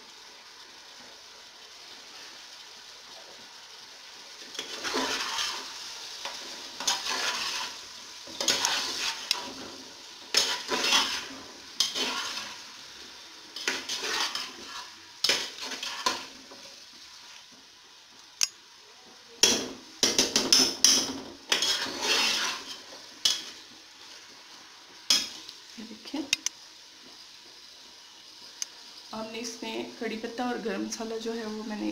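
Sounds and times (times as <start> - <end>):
frying sizzle: 0.0 - 31.9
metal spoon scraping a pot: 6.8 - 7.8, 10.3 - 12.6, 13.6 - 16.3, 20.4 - 23.5.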